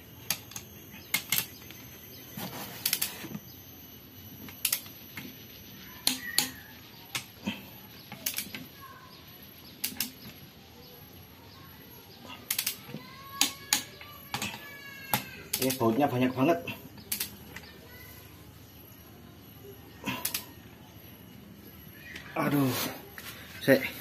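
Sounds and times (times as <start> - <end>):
wrench clicking: 12.5 - 12.8.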